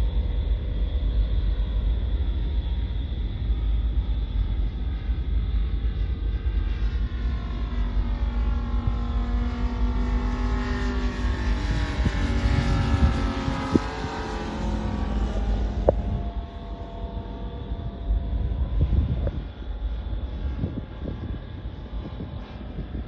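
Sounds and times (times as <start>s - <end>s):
model plane engine flying past: 5.9s - 23.0s.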